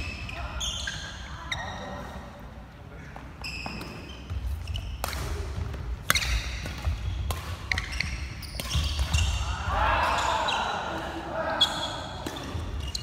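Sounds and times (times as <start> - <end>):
shoes squeaking on wooden floor: 3.0 - 5.0, 7.0 - 9.3
rackets hitting shuttlecock: 3.6 - 10.3, 12.1 - 13.0.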